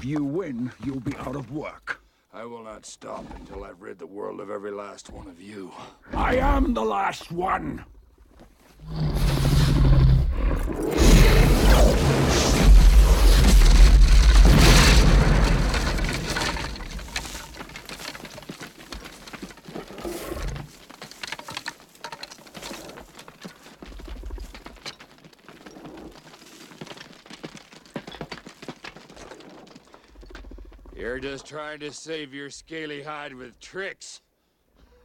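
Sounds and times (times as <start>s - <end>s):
fiery explosion with deep rumble: 8.8s - 17.3s
faint crackles and ticks: 15.3s - 32.0s.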